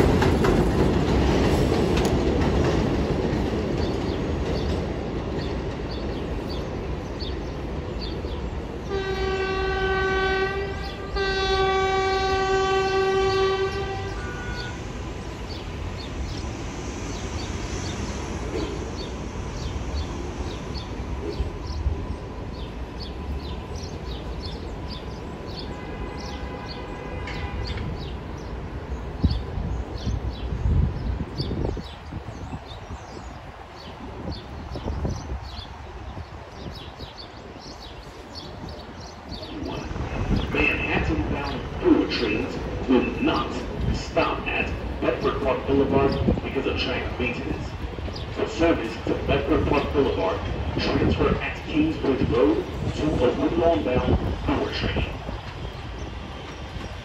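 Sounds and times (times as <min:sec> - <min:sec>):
train rumbling on elevated track: 0:00.0 - 0:57.0
train horn blasts: 0:08.8 - 0:15.0, 0:25.6 - 0:28.1.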